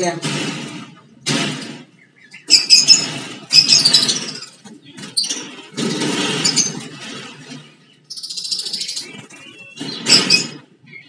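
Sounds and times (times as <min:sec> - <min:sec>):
birds squawking: 0:00.7 - 0:11.0.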